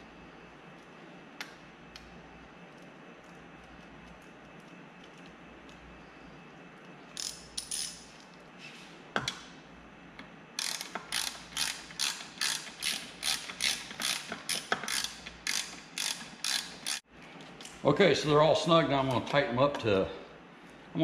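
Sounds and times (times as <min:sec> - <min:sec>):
ratchet wrench clicking: 0:07.2 - 0:08.0, 0:10.6 - 0:17.0.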